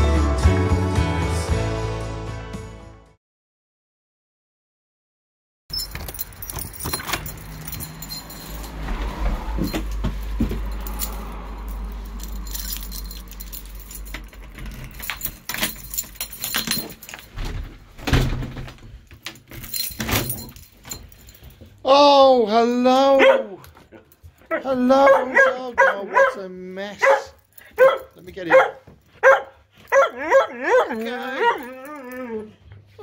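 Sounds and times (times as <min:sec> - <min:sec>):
keys jangling: 0:05.7 - 0:18.4, 0:19.0 - 0:21.8, 0:27.0 - 0:32.5
key clicking in door lock: 0:13.2 - 0:17.4.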